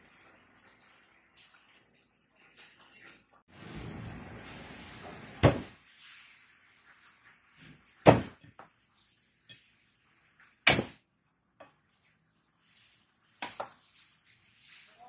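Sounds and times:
steady hiss: 3.5 - 11.1
knife chopping on wooden board: 5.4 - 5.7, 8.0 - 8.5, 10.7 - 11.0.

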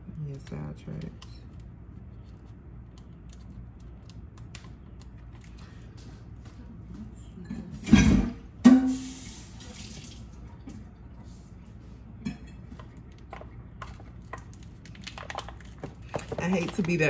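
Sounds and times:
package clicks and rustles: 13.9 - 17.0.

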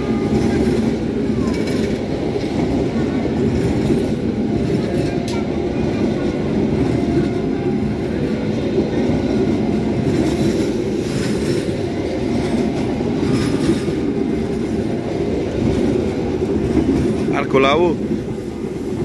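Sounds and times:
clickety-clack over rail joints: 0.0 - 19.0
train wheels rumbling on rails: 0.0 - 19.0.

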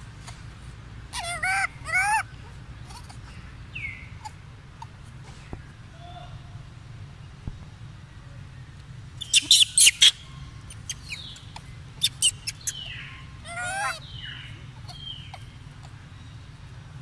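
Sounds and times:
low steady hum: 0.0 - 17.0
animal squeaks and chirps: 1.1 - 2.3, 9.2 - 15.6
wavering animal squeal: 1.1 - 2.3, 13.4 - 14.0.

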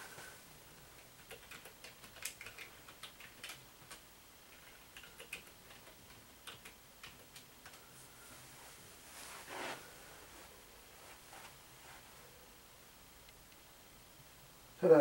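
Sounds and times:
keyboard typing clicks: 1.0 - 7.8.

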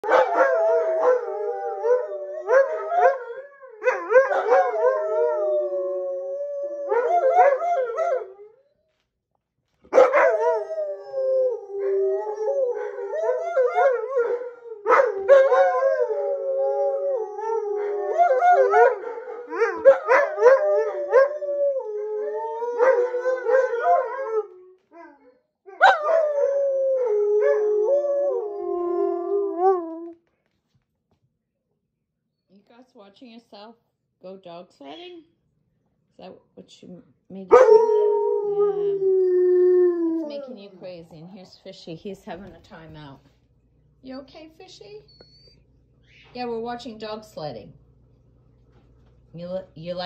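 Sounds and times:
dogs howling: 0.0 - 8.6, 9.9 - 30.2, 37.5 - 40.7.

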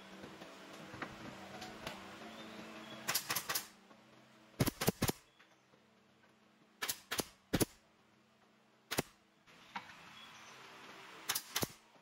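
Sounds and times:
nail gun firing: 3.1 - 3.8, 4.6 - 5.3, 6.8 - 7.8, 8.9 - 9.2, 11.2 - 11.8.

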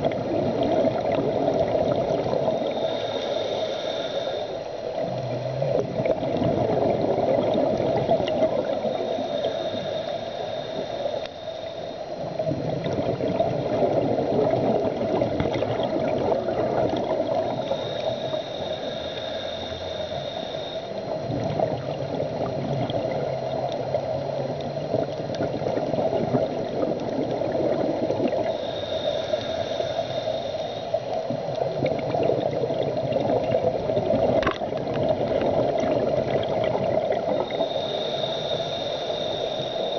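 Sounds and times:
bubbling: 0.0 - 3.1, 4.8 - 11.4, 12.2 - 39.9
muffled underwater rush: 0.0 - 39.9
thin high hiss: 2.3 - 5.0, 8.7 - 12.3, 17.4 - 21.2, 28.3 - 31.4, 37.2 - 39.9.

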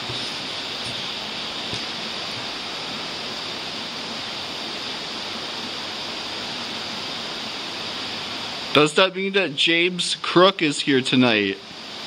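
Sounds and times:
steady rushing noise: 0.0 - 9.9.

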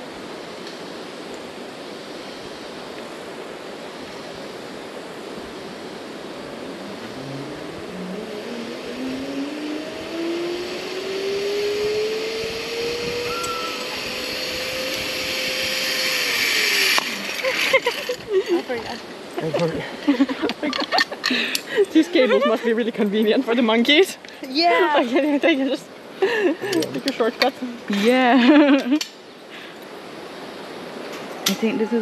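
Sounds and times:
wind rushing: 3.9 - 19.2
zip-line pulleys whining on cable: 5.8 - 19.3.

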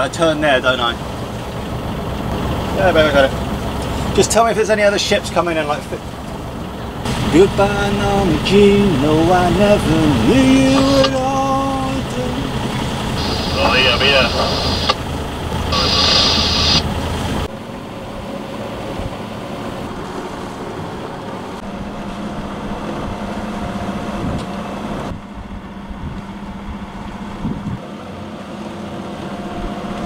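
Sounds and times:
boat engine running: 0.0 - 30.0
brief hiss: 13.2 - 15.0, 15.7 - 16.9.

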